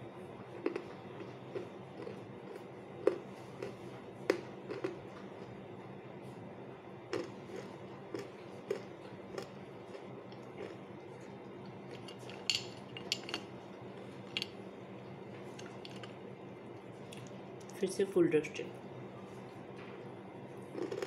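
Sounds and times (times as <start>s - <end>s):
steady low hum: 0.0s - 21.0s
stones clinking against glass dish: 12.0s - 13.4s.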